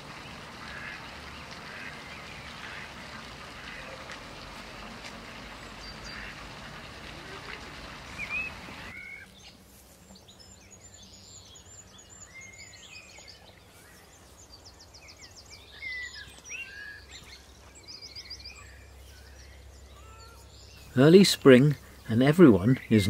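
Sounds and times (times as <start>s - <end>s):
songbirds singing: 0.0s - 23.0s.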